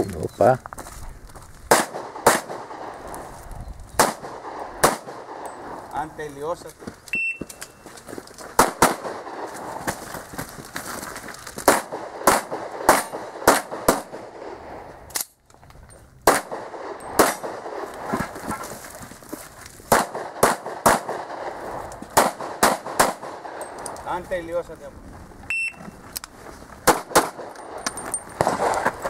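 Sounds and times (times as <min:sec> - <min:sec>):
handgun shots: 0:01.7 - 0:02.8, 0:04.0 - 0:05.5, 0:11.7 - 0:14.2, 0:16.3 - 0:17.8, 0:22.2 - 0:23.9, 0:26.9 - 0:28.9.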